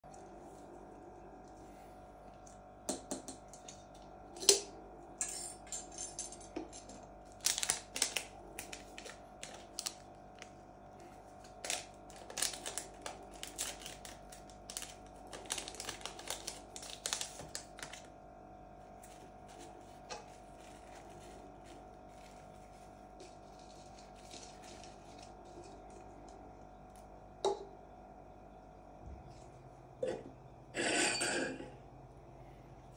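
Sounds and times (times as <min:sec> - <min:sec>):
foil packet crinkling: 0:07.3 - 0:10.6, 0:11.3 - 0:18.1, 0:19.0 - 0:26.0.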